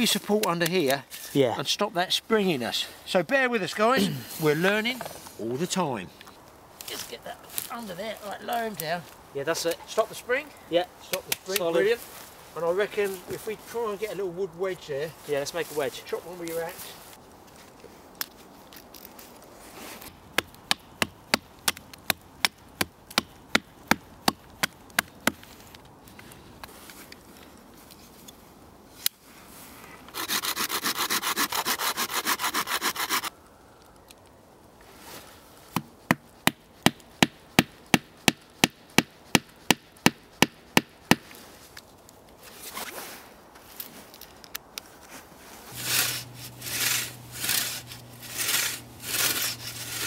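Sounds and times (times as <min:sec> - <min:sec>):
harsh rasping: 0:30.1 - 0:33.3, 0:45.7 - 0:50.0.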